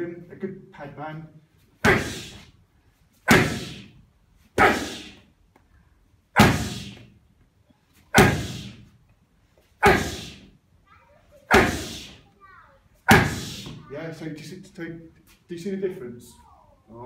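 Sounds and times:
punches smacking focus pads: 3.3 - 3.9, 6.4 - 7.0, 8.2 - 8.8, 11.5 - 12.1, 13.1 - 13.8.

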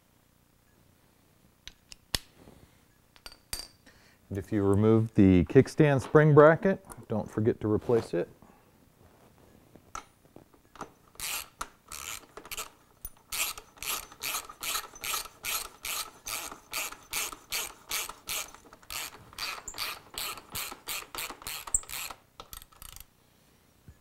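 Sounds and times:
ratchet wrench strokes: 11.2 - 23.1.

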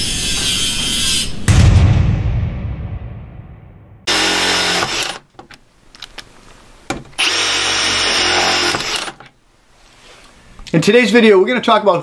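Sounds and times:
impulse driver driving screws: 4.1 - 5.2, 7.2 - 9.2.

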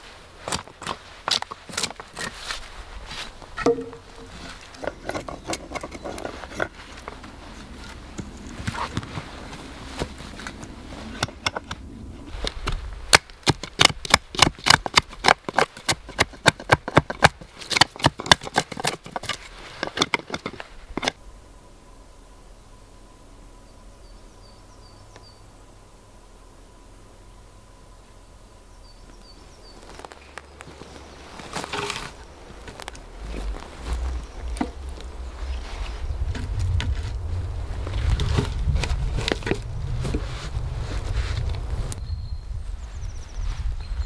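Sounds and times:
hand tool clicks and knocks on wood: 3.6 - 7.2, 12.6 - 21.2.

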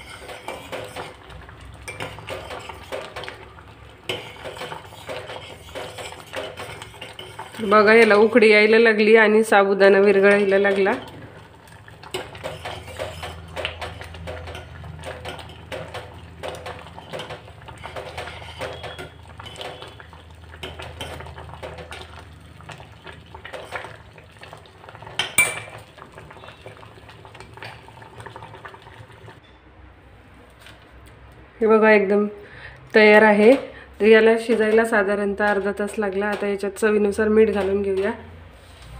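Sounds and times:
metal spoon scraping pot: 0.0 - 8.4, 10.1 - 11.2, 12.0 - 20.0
pot ringing faintly: 25.0 - 27.9.

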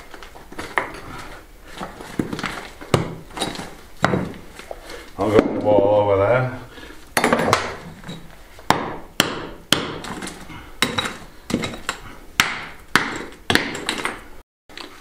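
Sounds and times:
hammer striking concrete: 2.2 - 4.4, 8.7 - 14.2.

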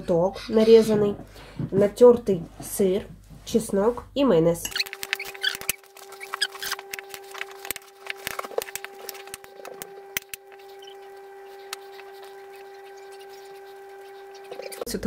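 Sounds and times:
steady hum: 4.8 - 15.0.

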